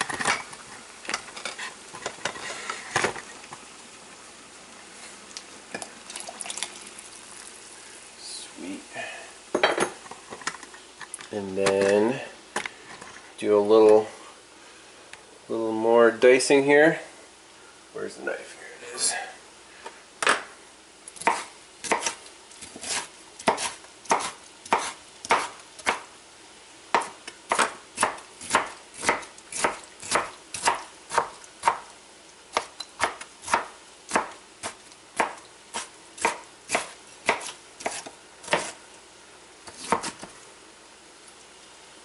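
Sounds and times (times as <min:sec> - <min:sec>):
knife chopping on plastic board: 0:21.2 - 0:26.0, 0:26.9 - 0:31.8, 0:32.5 - 0:38.8, 0:39.7 - 0:40.3.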